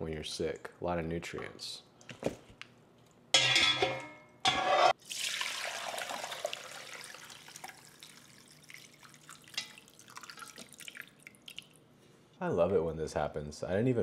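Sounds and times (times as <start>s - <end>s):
loud scrapes: 4.5s - 5.0s
broth pouring through strainer: 5.0s - 11.8s.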